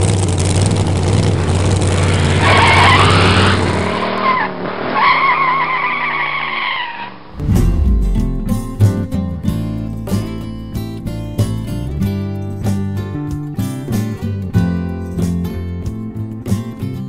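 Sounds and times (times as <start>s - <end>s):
car engine running: 7.4s - 12.3s
guitar music: 7.4s - 17.0s.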